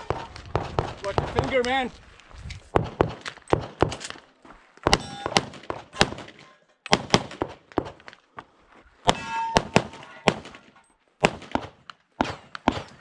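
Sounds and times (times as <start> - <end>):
pistol shots: 2.7 - 4.1, 4.8 - 8.0, 9.1 - 13.0
steel target ringing: 9.1 - 10.3.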